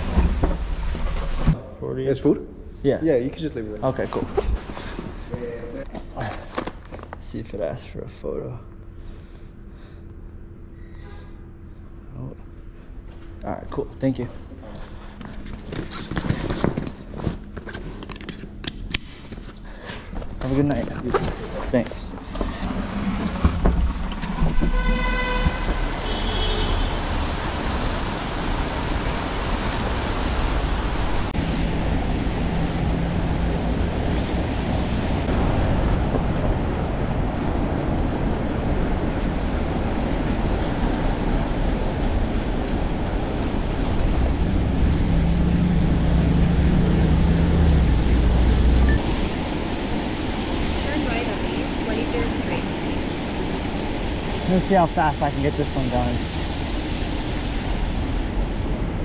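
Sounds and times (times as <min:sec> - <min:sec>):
traffic: 0:00.0 - 0:59.0
tires hissing on wet road: 0:24.7 - 0:59.0.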